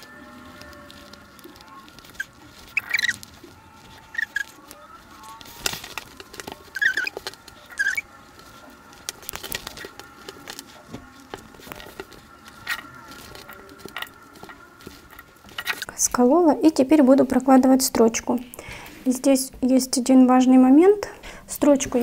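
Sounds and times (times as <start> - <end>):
fabric rustling: 0.0 - 16.4.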